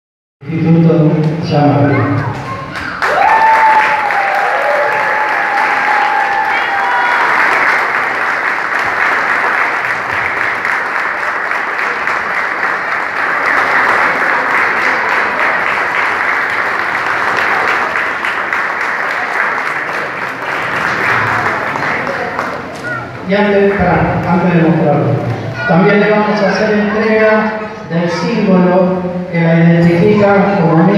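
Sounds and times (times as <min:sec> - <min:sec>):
audience applauding: 0:02.8 - 0:23.8.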